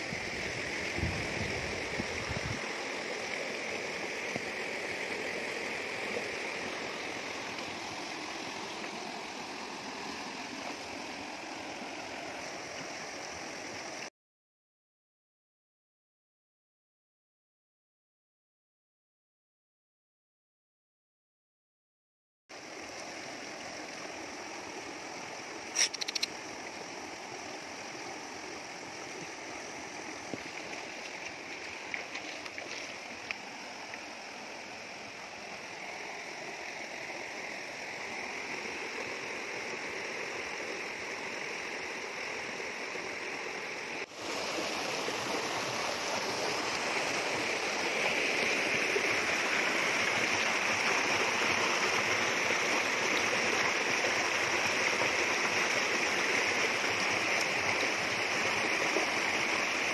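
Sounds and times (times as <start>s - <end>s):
stream rushing over rocks: 0.0s - 14.1s, 22.5s - 59.9s
sharp click: 25.8s - 26.4s.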